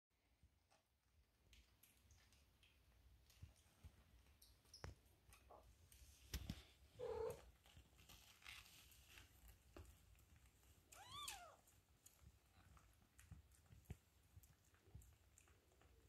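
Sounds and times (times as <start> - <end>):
small rustling clicks: 0.7 - 16.0
faint low purr: 7.0 - 7.6.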